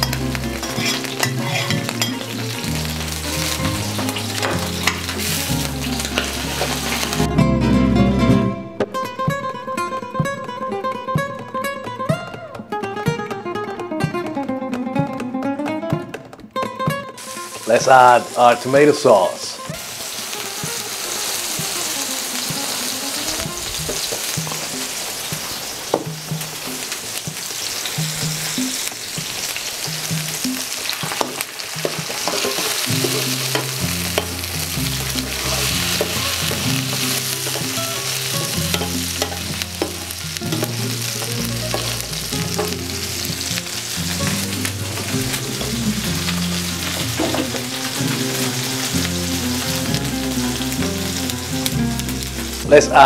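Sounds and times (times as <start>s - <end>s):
sauce sizzling in hot oil: 0.0s - 7.3s, 17.2s - 53.0s
low stepped bass line: 33.0s - 53.0s
metal spoon clicking against pan: 38.7s - 40.7s.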